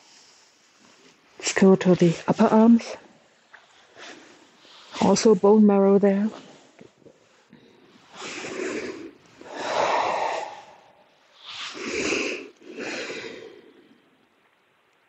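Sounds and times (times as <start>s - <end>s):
person breathing slowly: 6.6s - 14.2s.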